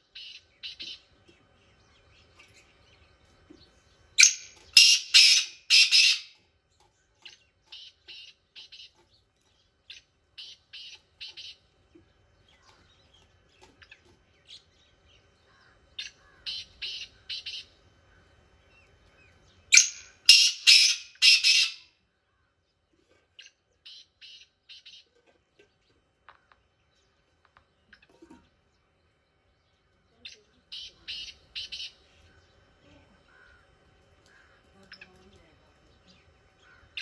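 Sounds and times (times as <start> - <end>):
bird harsh grating calls: 4.2 - 6.4, 19.7 - 21.9.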